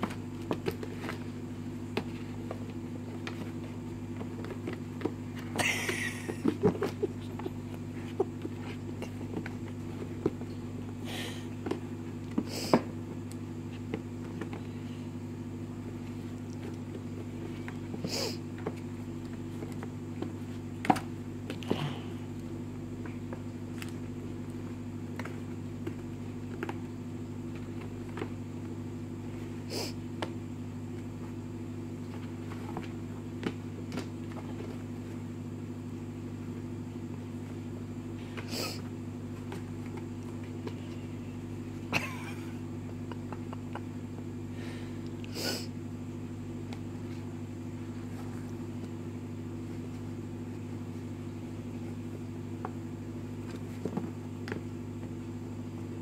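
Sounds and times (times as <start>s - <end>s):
kittens tapping on cardboard: 0.0s - 10.9s, 23.0s - 28.4s
low machine hum: 0.0s - 56.0s.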